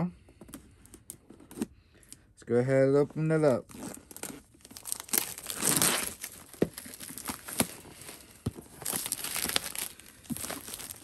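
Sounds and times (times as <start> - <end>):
cardboard box opening: 3.7 - 11.0.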